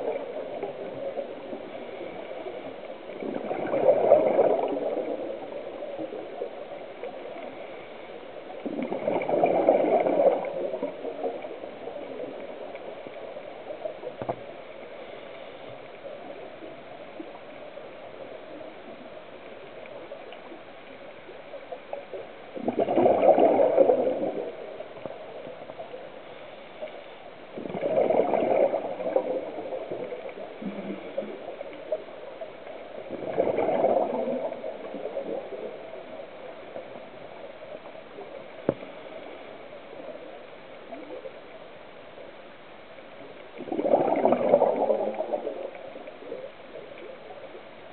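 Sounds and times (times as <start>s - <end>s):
steady underwater hiss: 0.0s - 47.9s
bubbling exhaled air bursts: 3.2s - 5.2s, 8.6s - 10.9s, 22.6s - 24.5s, 27.6s - 29.7s, 30.6s - 31.4s, 33.1s - 35.2s, 43.6s - 45.6s.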